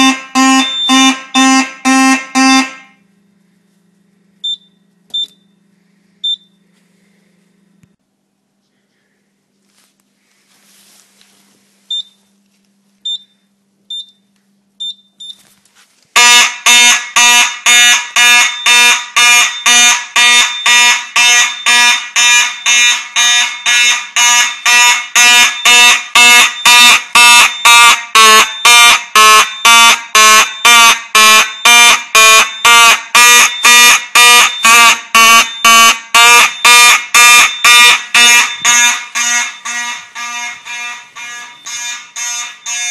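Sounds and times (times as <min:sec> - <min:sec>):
short high beeps: 0:00.0 - 0:02.9, 0:36.5 - 0:42.9
fire alarm horns blasting: 0:00.0 - 0:03.2, 0:16.2 - 0:42.9
faint low hum: 0:00.1 - 0:16.1.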